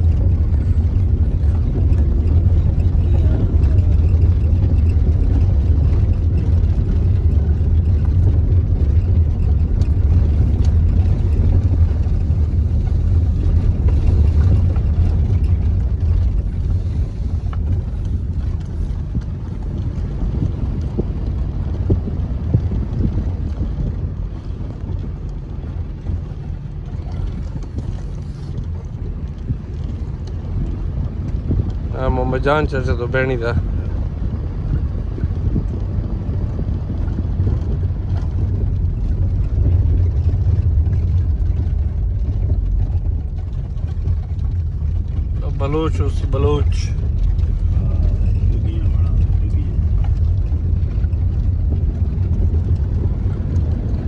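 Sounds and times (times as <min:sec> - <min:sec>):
car engine rumble: 0:00.0 - 0:54.0
tyres on dirt track: 0:00.0 - 0:54.0.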